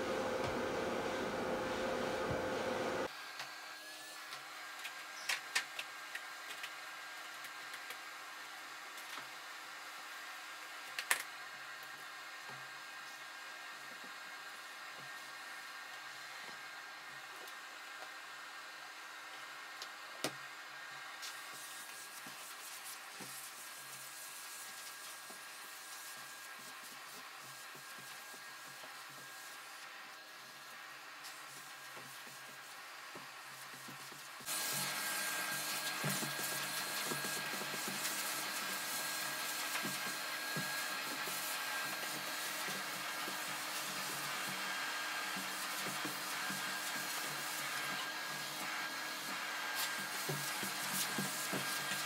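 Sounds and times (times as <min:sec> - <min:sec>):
vacuum cleaner running: 0:00.0 - 0:04.7, 0:11.9 - 0:52.0.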